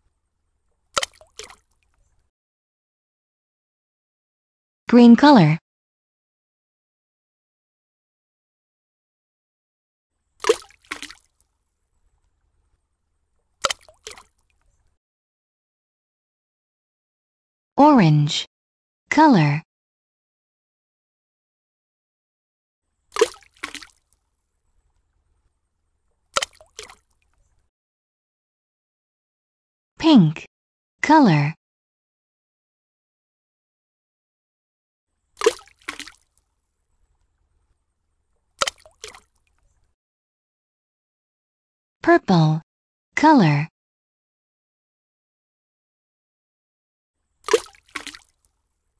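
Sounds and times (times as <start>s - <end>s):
cartoon splashes: 1.0s - 1.7s, 10.4s - 11.3s, 13.6s - 14.4s, 23.1s - 24.0s, 26.4s - 27.1s, 35.4s - 36.2s, 38.6s - 39.3s, 47.4s - 48.3s.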